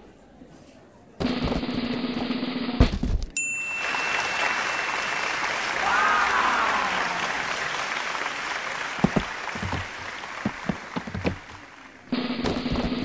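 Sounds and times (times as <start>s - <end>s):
audience applause: 3.7s - 12.1s.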